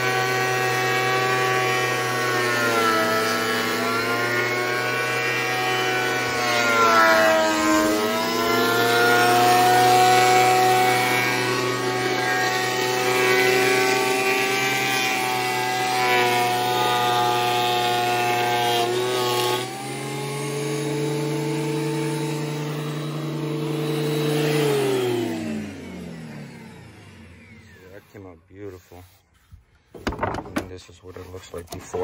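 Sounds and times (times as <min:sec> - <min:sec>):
planer motor winding down: 0:00.0 - 0:28.9
electric wood planer cutting board: 0:00.0 - 0:32.0.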